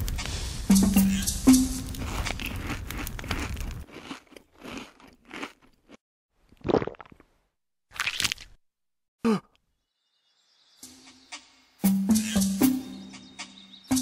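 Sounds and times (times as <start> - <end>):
steady background sound: 0.0 - 4.4, 9.7 - 14.0
crunchy chewing bites: 1.9 - 6.0, 7.9 - 8.6.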